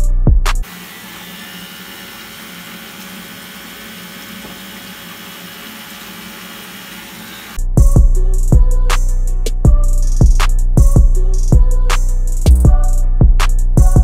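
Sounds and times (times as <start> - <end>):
loud music: 7.6 - 14.0.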